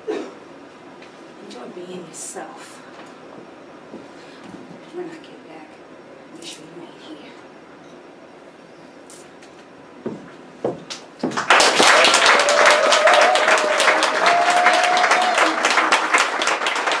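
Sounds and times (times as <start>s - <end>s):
audience applauding and cheering: 11.2s - 17.0s
person holding long cheer: 11.5s - 17.0s.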